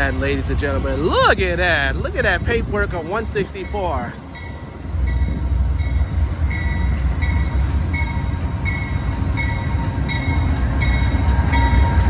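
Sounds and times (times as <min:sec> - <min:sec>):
diesel locomotive rumbling: 0:00.0 - 0:12.0
train bell ringing: 0:03.3 - 0:12.0.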